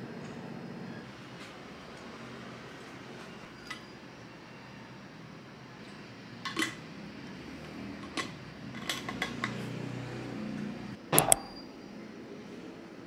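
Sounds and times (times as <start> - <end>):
metal bottle clinks and taps: 11.2 - 11.6.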